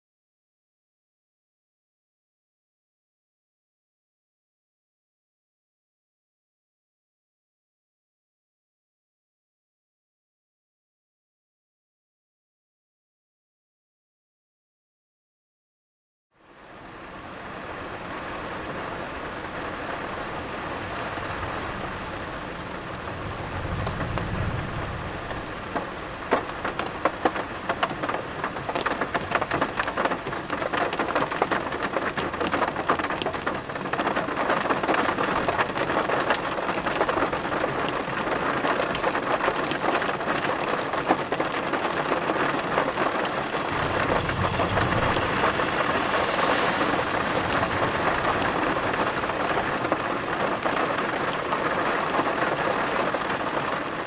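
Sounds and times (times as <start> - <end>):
heavy rain falling: 16.4 - 54.0
thunder rumbling: 20.0 - 33.8, 42.5 - 51.8.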